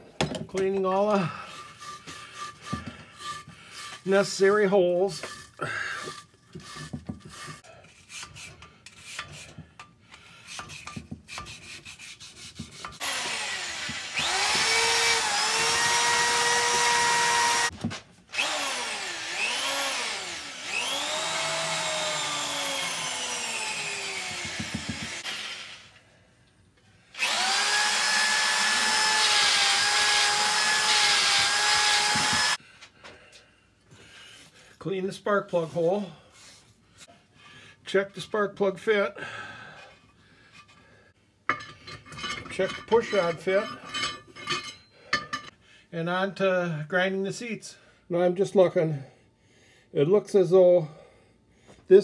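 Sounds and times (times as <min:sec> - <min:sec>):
hand tool scraping and clicking: 0:01.4 - 0:16.0, 0:39.8 - 0:40.9, 0:41.5 - 0:45.6
electric power tool whining: 0:13.0 - 0:26.0, 0:27.1 - 0:32.6.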